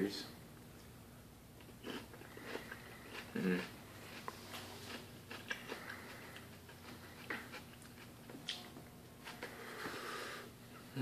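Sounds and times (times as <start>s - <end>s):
man chewing wet mouth noises: 1.6s - 10.9s
breath: 9.4s - 10.6s.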